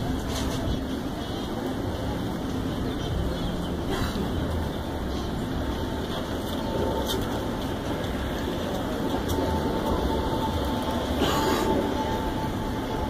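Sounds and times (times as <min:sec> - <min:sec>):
faint high steady tone: 0:08.9 - 0:13.0.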